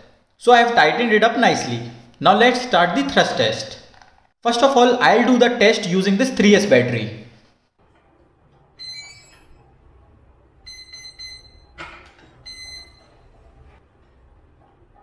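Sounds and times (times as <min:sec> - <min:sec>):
motor controller start-up beeps: 0:10.7 - 0:11.8, 0:12.4 - 0:13.2.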